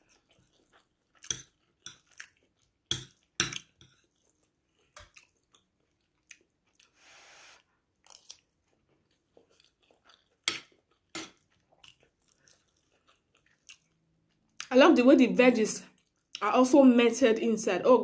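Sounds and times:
person chewing food: 0.0s - 7.0s, 7.6s - 14.7s, 15.9s - 16.4s
short breathy hiss: 7.0s - 7.6s.

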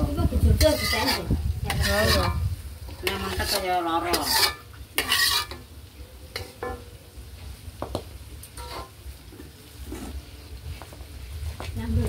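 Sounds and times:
hot oil sizzling: 0.0s - 12.0s
metal spatula scraping wok: 0.1s - 6.9s, 8.5s - 9.1s.

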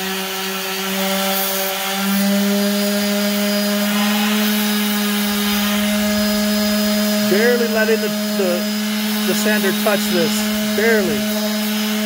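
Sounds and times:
orbital sander humming: 0.0s - 12.0s.

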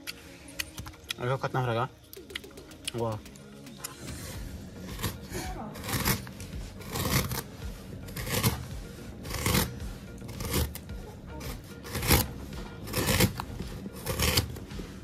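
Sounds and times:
knife slicing through fruit: 3.8s - 7.5s, 8.1s - 14.7s.

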